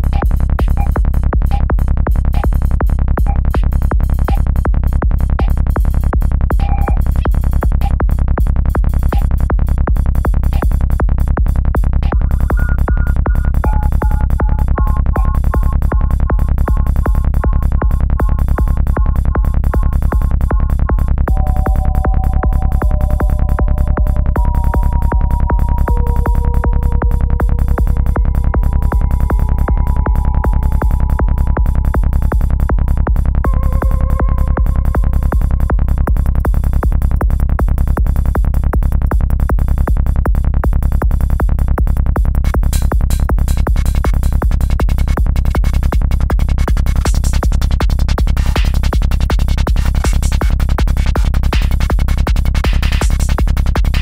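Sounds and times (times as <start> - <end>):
synth melody of held notes: 21.3 - 35.9.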